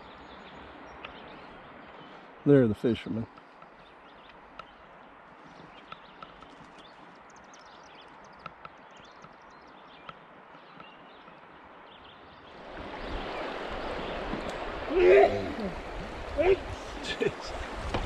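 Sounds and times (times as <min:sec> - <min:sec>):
calm river ambience: 0:00.0 - 0:18.0
fast water rushing: 0:10.2 - 0:18.0.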